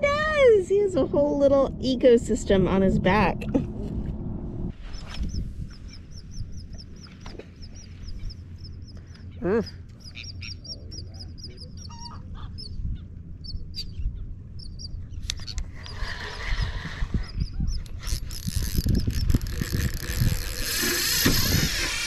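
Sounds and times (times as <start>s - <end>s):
birds chirping: 4.2s - 19.4s.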